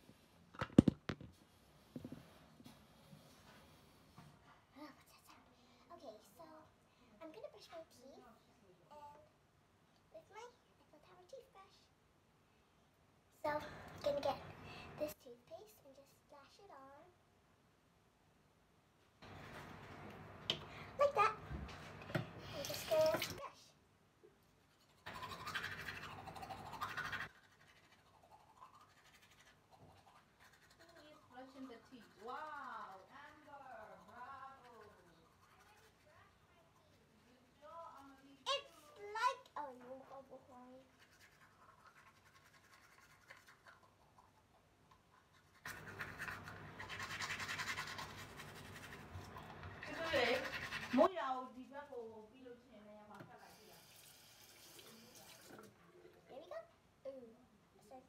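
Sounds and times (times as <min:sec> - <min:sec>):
girl's voice: 0:04.7 - 0:09.3, 0:10.1 - 0:11.9, 0:13.4 - 0:17.2, 0:21.0 - 0:21.5, 0:22.4 - 0:23.8, 0:34.0 - 0:40.9, 0:56.1 - 0:58.0
toothbrush scrubbing teeth: 0:24.6 - 0:39.5, 0:40.2 - 0:51.1, 0:53.4 - 0:56.2.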